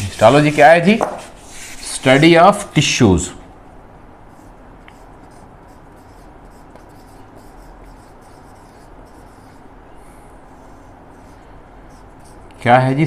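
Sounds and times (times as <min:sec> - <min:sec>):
marker writing on whiteboard: 0:04.3 - 0:09.6, 0:10.5 - 0:12.6.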